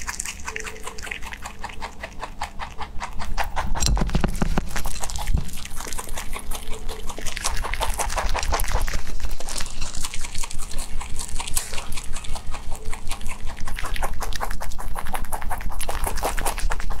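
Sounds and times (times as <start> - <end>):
rabbit chewing grass: 0.0 - 17.0.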